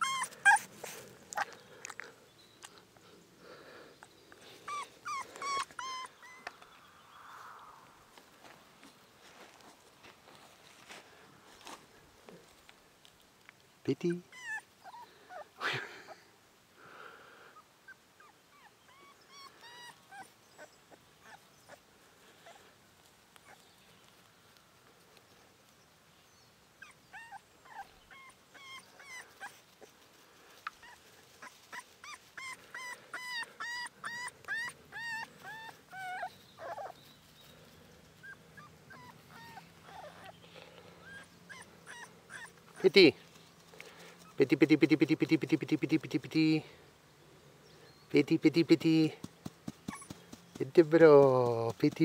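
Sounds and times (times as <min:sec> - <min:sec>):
puppy whimpering: 0:00.0 - 0:01.6, 0:04.7 - 0:06.6, 0:14.2 - 0:15.5, 0:17.9 - 0:21.8, 0:26.8 - 0:29.9, 0:30.8 - 0:37.1, 0:38.2 - 0:42.9, 0:49.9 - 0:50.3.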